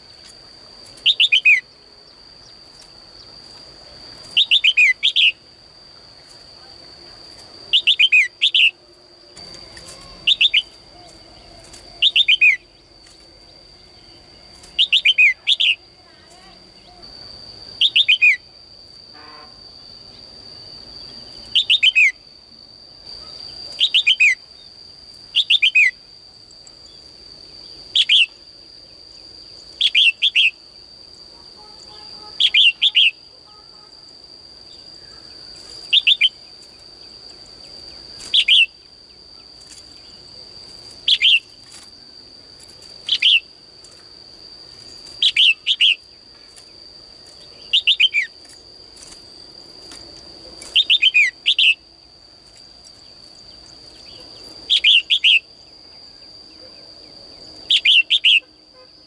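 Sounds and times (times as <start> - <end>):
high-pitched whine: 0.0 - 59.0
bird chirping: 1.0 - 1.7, 4.2 - 5.4, 7.7 - 12.9, 14.0 - 15.8, 17.8 - 18.5, 21.4 - 22.2, 31.8 - 33.2.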